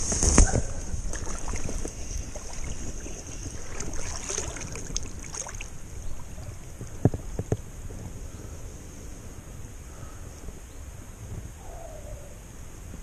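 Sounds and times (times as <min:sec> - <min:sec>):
river water: 0:00.0 - 0:08.9
steady high hiss: 0:00.0 - 0:11.6
wind buffeting microphone: 0:00.0 - 0:13.0.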